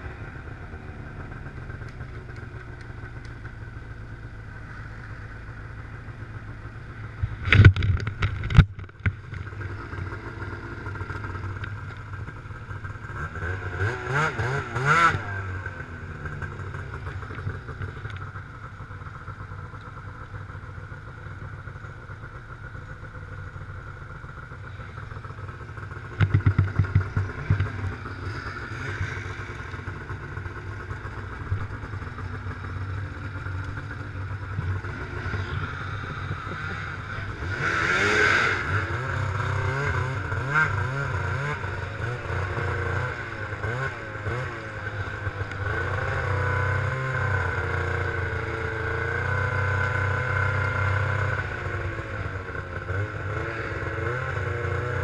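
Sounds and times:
snowmobile engine idling: 0:00.0 - 0:55.0
engine revving: 0:09.4 - 0:18.2, 0:24.9 - 0:55.0.

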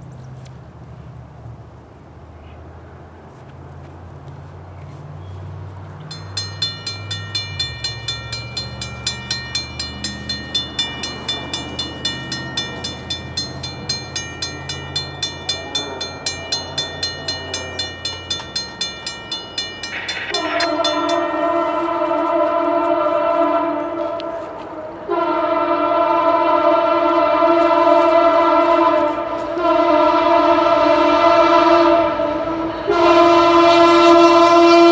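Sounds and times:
crossing bell ringing: 0:06.0 - 0:25.4, 0:26.5 - 0:34.9
locomotive air horn blowing: 0:20.3 - 0:34.9.

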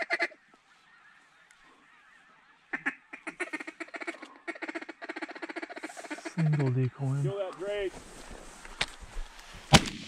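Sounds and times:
waterfowl honking and quacking: 0:00.0 - 0:06.7.

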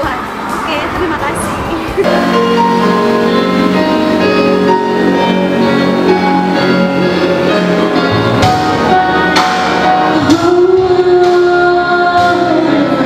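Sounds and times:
instrumental backing track: 0:01.8 - 0:13.0
person singing: 0:08.8 - 0:13.0.

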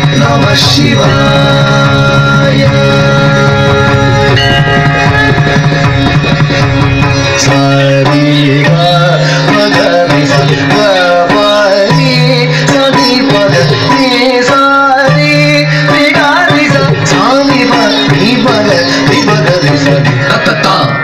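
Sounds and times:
ornamented melody: 0:00.1 - 0:21.0
low drone notes: 0:01.0 - 0:07.6
hand drum strokes: 0:01.8 - 0:07.8.

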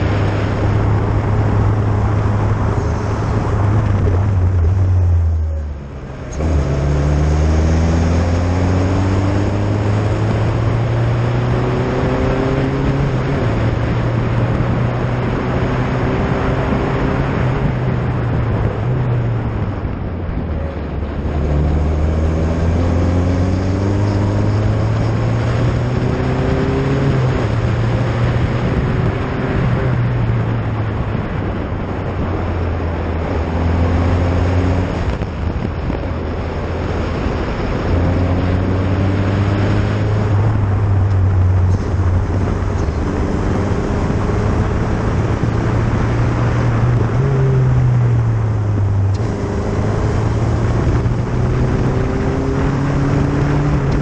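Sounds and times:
wind and tyre noise: 0:00.0 - 0:54.0
race car engine shifting gears: 0:48.2 - 0:54.0.

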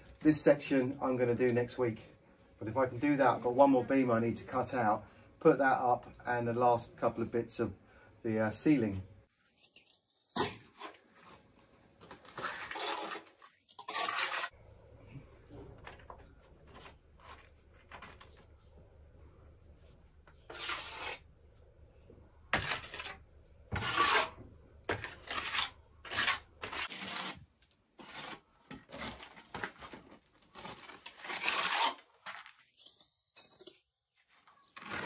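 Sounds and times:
hand tool scraping render: 0:12.3 - 0:14.6, 0:20.4 - 0:21.2, 0:22.5 - 0:27.4, 0:28.0 - 0:29.3, 0:31.2 - 0:32.0, 0:34.8 - 0:35.0.

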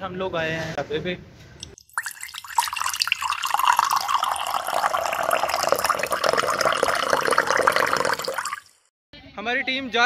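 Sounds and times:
water pouring into a glass: 0:01.6 - 0:08.9.

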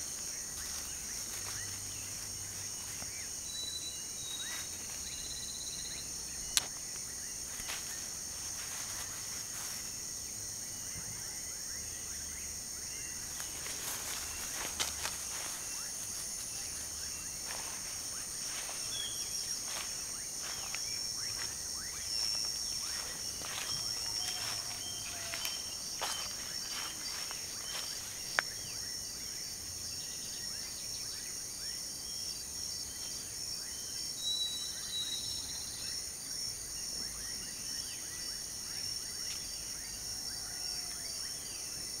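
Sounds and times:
rustling through grass: 0:00.0 - 0:05.4, 0:06.6 - 0:10.1, 0:13.1 - 0:28.7
insects chorus: 0:00.0 - 0:42.0.

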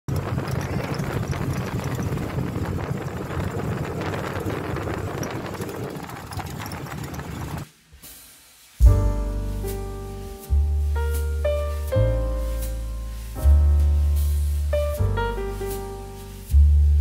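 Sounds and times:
road rumble: 0:00.1 - 0:07.7
vehicle engine: 0:00.1 - 0:07.7.

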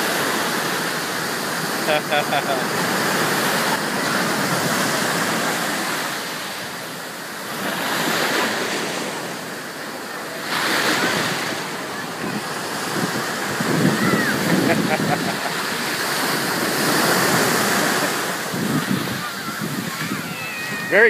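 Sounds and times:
ocean surf breaking: 0:00.0 - 0:21.0.

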